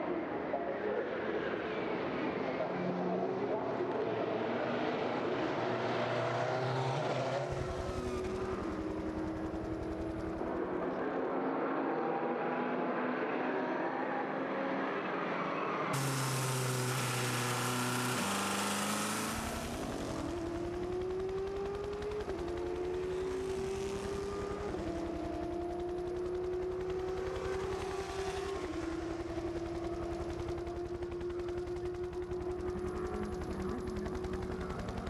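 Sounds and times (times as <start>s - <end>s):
race car engine shifting gears: 16.0s - 26.2s.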